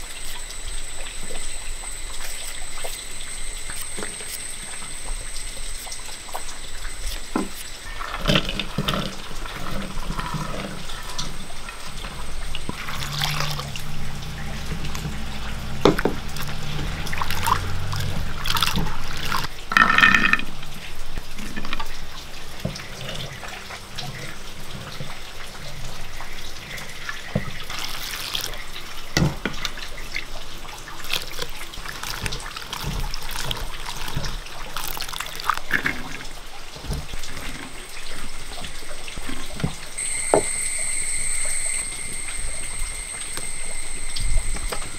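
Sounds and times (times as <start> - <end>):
water splashing: 0.0 - 44.9.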